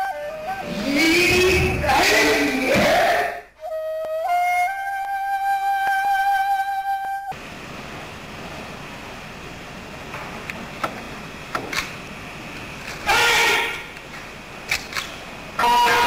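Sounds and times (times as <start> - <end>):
held flute note: 0.0 - 7.4, 15.6 - 16.0
tape hiss: 0.0 - 16.0.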